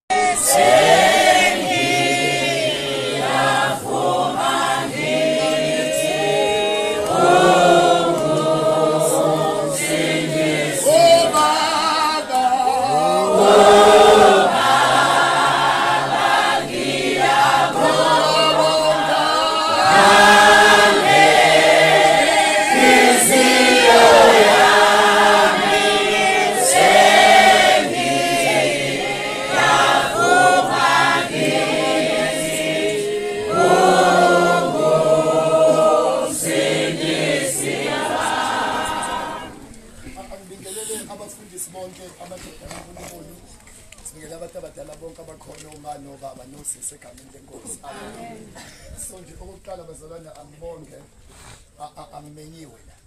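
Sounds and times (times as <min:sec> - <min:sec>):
choir singing a hymn: 0:00.1 - 0:39.8.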